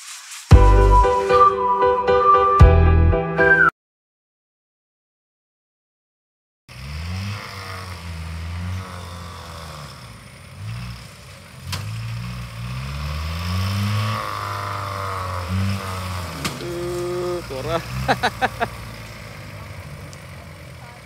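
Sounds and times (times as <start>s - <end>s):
off-road vehicle engine revving: 6.7s - 21.0s.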